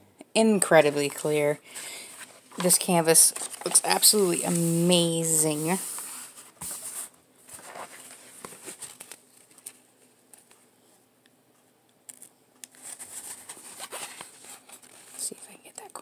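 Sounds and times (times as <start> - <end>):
canvas and paper rustling: 1.7 - 9.8, 12.7 - 15.4.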